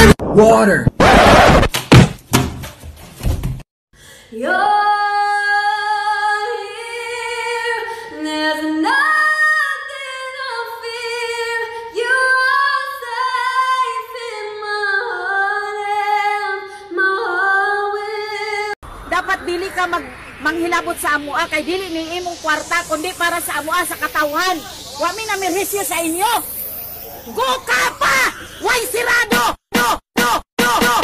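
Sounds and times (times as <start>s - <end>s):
burst of loud noise: 0.9s - 1.7s.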